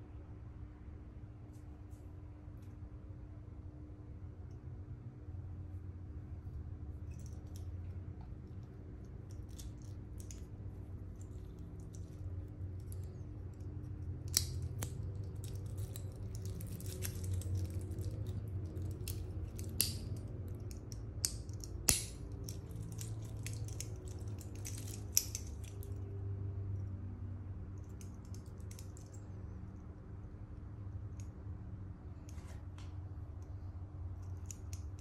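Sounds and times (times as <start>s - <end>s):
low steady hum: 0.0s - 35.0s
metal watch bracelet rattling: 6.9s - 26.0s, 27.8s - 29.5s.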